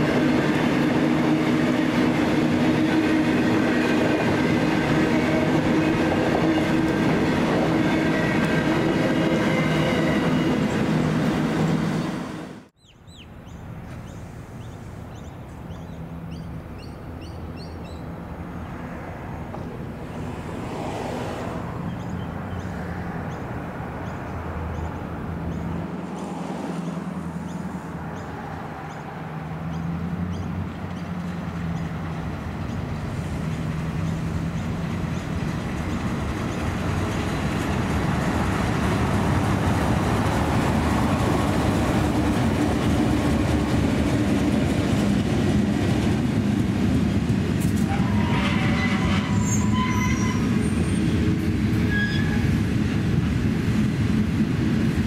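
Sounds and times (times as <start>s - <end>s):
diesel locomotive engine hum: 0.0s - 55.0s
small birds chirping: 12.8s - 18.1s, 21.9s - 28.3s.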